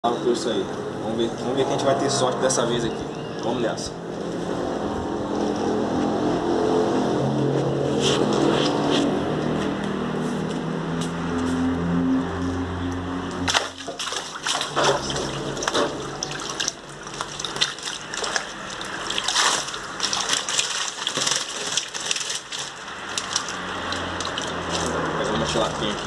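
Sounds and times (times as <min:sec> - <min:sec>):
water sloshing and splashing: 0:13.3 - 0:26.0.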